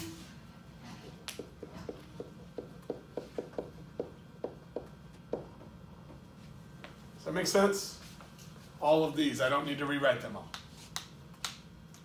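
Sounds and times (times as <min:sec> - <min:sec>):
faint room hum: 0:00.0 - 0:12.0
marker writing on whiteboard: 0:01.4 - 0:05.5.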